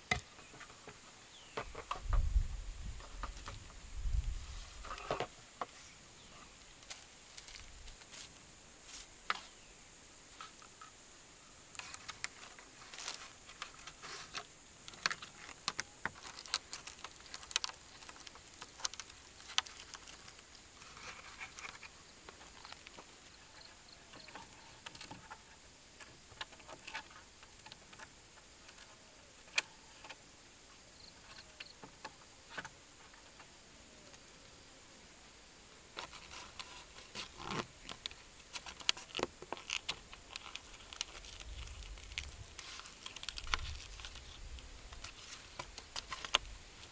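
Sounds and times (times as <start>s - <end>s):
dry bamboo strips crackling: 0.0s - 9.6s, 10.3s - 30.3s, 35.9s - 46.9s.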